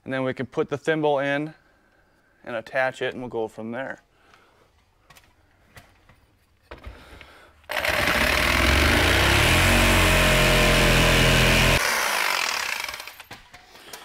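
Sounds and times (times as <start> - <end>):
jigsaw cutting board: 7.7 - 13.3.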